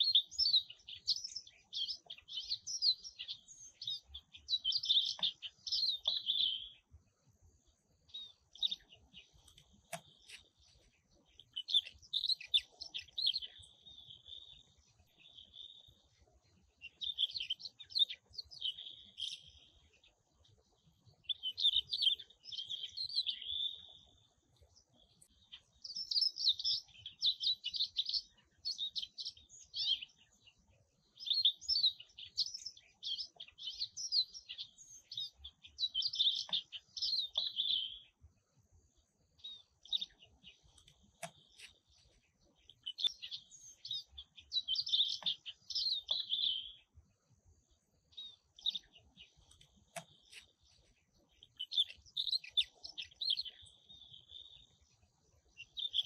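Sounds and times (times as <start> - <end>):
songbird twittering: 0.0 - 7.0, 7.6 - 38.2, 39.3 - 47.0, 47.7 - 56.0.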